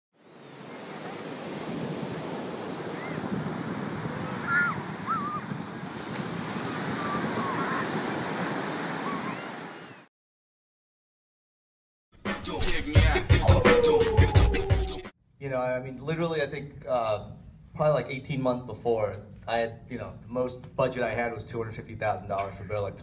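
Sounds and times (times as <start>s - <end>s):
surf washing over rocks: 0.2s - 10.0s
short bird calls: 4.4s - 5.5s.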